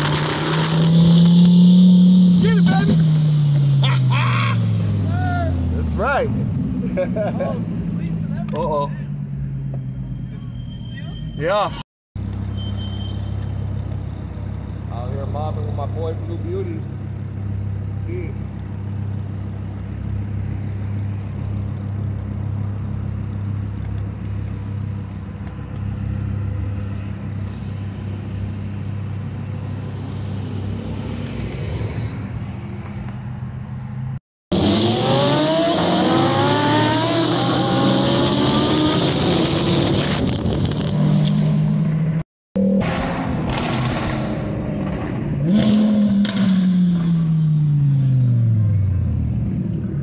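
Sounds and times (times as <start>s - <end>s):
car engines idling: 2.4s - 10.6s, 13.7s - 30.3s
engine accelerating hard: 34.5s - 48.4s.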